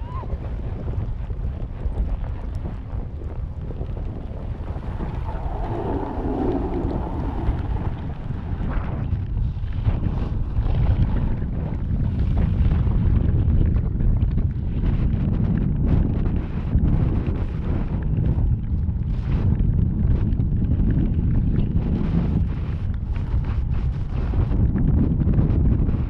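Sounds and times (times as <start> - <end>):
wind rushing over microphone: 0.0 - 26.0
snowboard scraping snow: 4.6 - 9.1.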